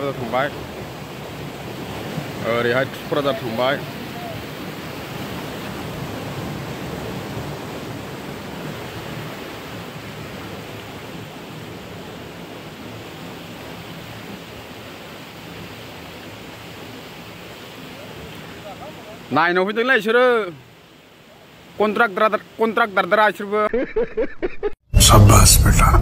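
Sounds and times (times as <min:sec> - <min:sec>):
floodwater rushing: 0:00.0 - 0:23.1.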